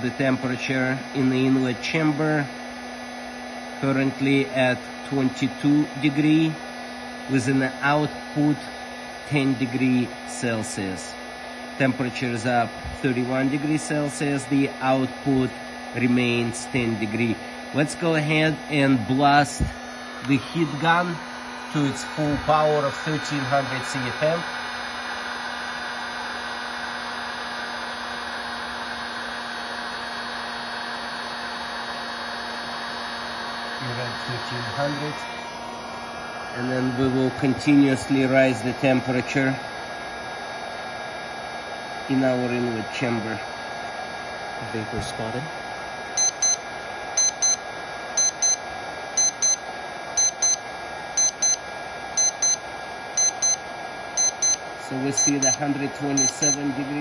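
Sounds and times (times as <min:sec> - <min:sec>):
heat gun blower whirring: 0:00.0 - 0:57.0
thermometer alarm double beeps: 0:46.2 - 0:46.6, 0:47.2 - 0:47.6, 0:48.2 - 0:48.6, 0:49.2 - 0:49.6, 0:50.2 - 0:50.6, 0:51.2 - 0:51.6, 0:52.2 - 0:52.6, 0:53.2 - 0:53.6, 0:54.2 - 0:55.6, 0:56.2 - 0:56.6.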